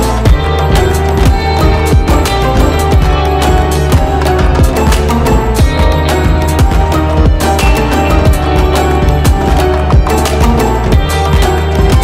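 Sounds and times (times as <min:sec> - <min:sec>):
music with steady beat: 0:00.0 - 0:12.0.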